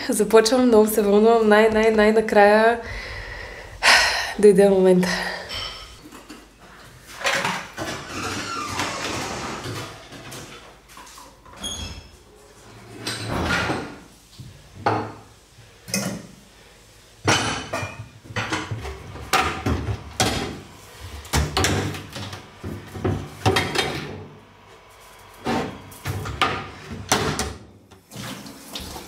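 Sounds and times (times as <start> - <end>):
dishes and pots clattering: 5.4 - 6.5, 17.2 - 20.6.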